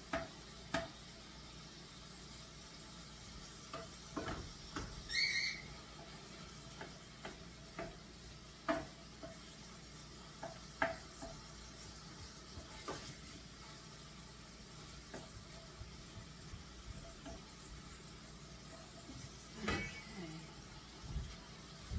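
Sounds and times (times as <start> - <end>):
meat sizzling in a pot: 0.0 - 21.9
high-pitched squeak: 5.1 - 5.7
spoon knocking against pot: 10.4 - 11.4.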